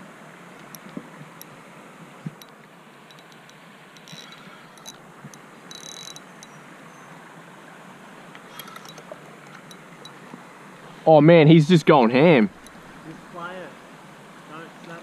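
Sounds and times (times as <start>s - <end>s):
faint steady hiss: 0.0s - 15.0s
fishing reel ticking: 3.1s - 6.6s, 8.5s - 10.2s.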